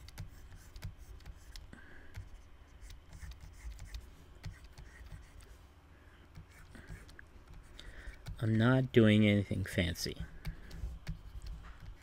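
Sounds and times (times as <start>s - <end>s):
stylus scratching on tablet: 0.0s - 5.7s, 6.3s - 8.4s, 10.3s - 12.0s.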